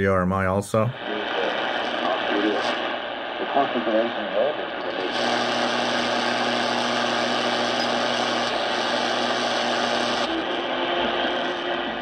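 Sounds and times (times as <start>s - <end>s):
radio static hiss: 0.7s - 12.0s
low buzzing hum: 5.2s - 10.7s.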